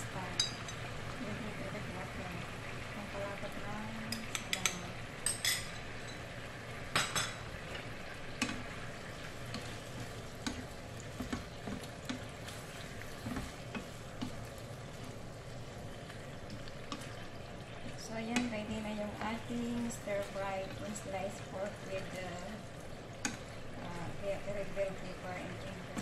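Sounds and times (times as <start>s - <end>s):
food sizzling in a pan: 0.0s - 26.0s
wooden spatula scraping a pan: 9.5s - 15.2s.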